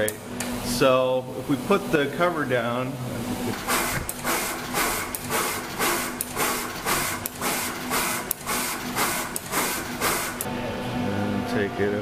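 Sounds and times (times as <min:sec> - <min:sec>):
steady low machine hum: 0:00.0 - 0:12.0
rhythmic air puffs hissing: 0:00.2 - 0:12.0
sharp machine clicks: 0:03.6 - 0:10.5.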